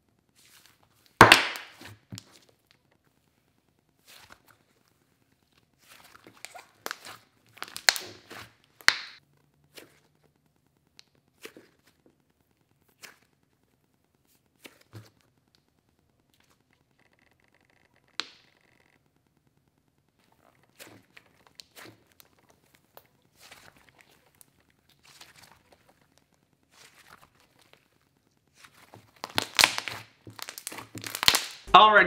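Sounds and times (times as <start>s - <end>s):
slime squelching: 0.3s - 17.0s, 19.8s - 31.8s
slime crackling and tearing: 5.7s - 10.3s, 20.2s - 31.7s.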